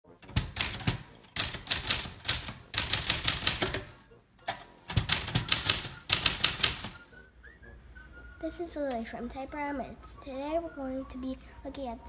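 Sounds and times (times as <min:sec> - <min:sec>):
typewriter keystroke clacks: 0:00.2 - 0:07.1.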